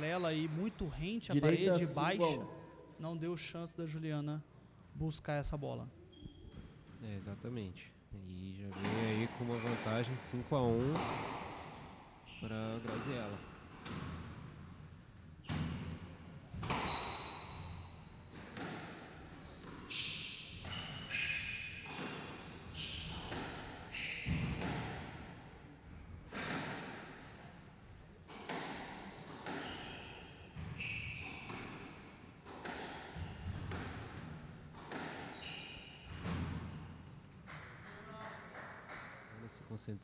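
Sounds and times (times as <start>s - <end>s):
sneakers squeaking on wood floor: 6.1s - 7.0s, 8.7s - 14.1s, 16.6s - 24.8s, 28.5s - 37.8s.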